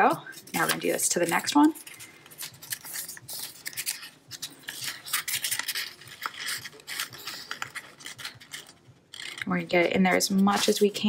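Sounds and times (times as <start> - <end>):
paper rustling and scraping: 0.3 - 11.0.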